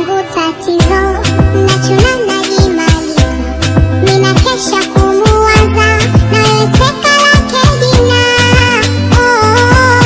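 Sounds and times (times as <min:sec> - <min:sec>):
sped-up high-pitched pop song: 0:00.0 - 0:10.0
kick drum beat: 0:03.8 - 0:10.0.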